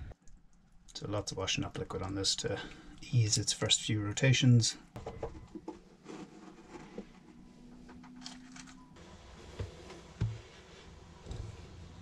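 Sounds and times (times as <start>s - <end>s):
soft handling noises: 4.9s - 12.0s.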